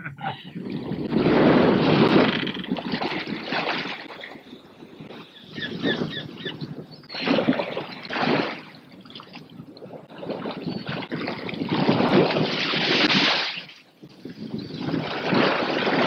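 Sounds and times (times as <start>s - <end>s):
wind rushing: 0.5s - 4.0s
sea rushing past ship: 0.6s - 4.4s.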